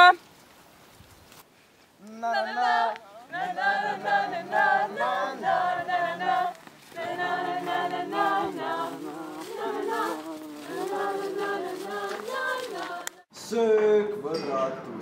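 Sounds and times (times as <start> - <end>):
group singing a cappella: 2.1 - 13.3.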